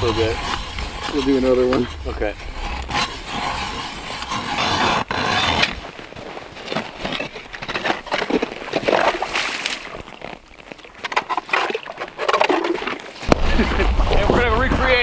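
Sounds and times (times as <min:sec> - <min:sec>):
ice auger grinding through ice: 0:00.0 - 0:10.4.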